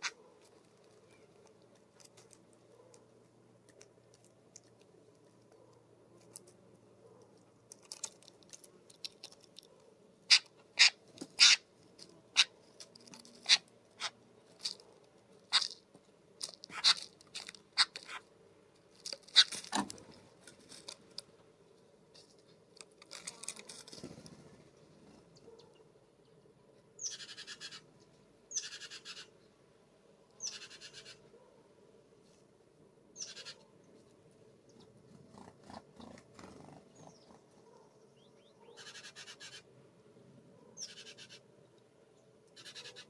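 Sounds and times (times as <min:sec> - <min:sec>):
harsh rasping bird calls: 0:00.0 - 0:00.3, 0:10.2 - 0:18.4, 0:19.1 - 0:19.8, 0:27.0 - 0:27.9, 0:28.5 - 0:29.5, 0:30.4 - 0:31.4, 0:33.2 - 0:33.8, 0:34.7 - 0:39.7, 0:40.7 - 0:41.6, 0:42.5 - 0:43.0.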